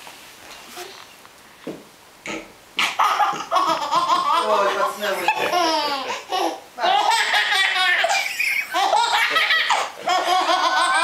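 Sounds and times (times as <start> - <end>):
baby laughing: 2.8 - 11.0.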